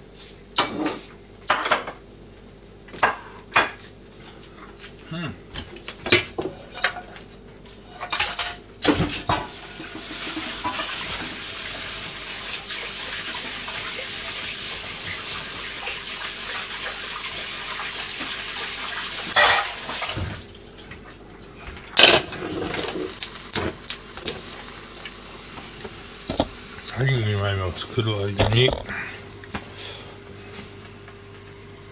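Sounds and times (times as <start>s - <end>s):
pans and dishes clattering: 0.6s - 2.0s, 8.0s - 11.2s, 19.3s - 20.4s, 22.0s - 23.0s, 28.4s - 29.1s
tap running into a sink: 22.2s - 26.6s, 28.3s - 28.9s.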